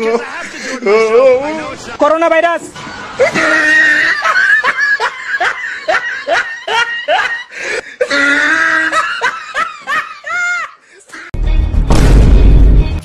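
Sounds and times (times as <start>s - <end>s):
person laughing high-pitched: 3.2s - 11.3s.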